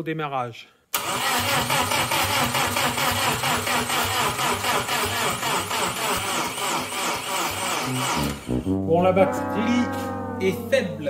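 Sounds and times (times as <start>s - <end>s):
starter motor cranking engine: 1.0s - 8.5s.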